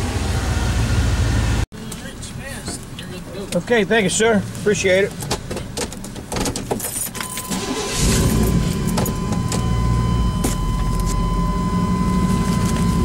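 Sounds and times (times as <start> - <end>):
high warning tone: 7.2 - 13.0
truck engine running: 7.6 - 13.0.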